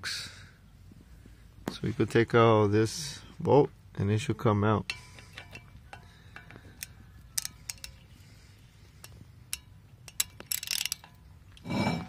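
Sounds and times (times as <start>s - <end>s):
metallic tool clicks and clinks: 4.9s - 8.1s, 9.0s - 11.2s
short rattle: 9.0s - 12.0s.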